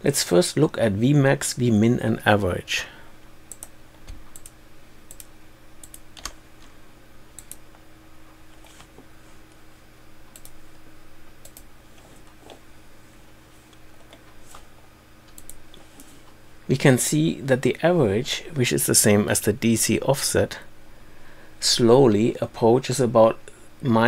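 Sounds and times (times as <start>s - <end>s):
faint low hum: 0.0s - 24.0s.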